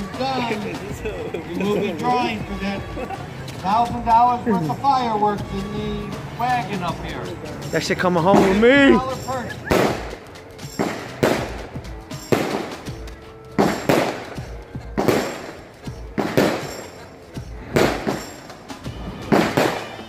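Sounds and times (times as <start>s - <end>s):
firework bangs: 9.7s - 10.2s, 10.8s - 12.9s, 13.6s - 20.0s.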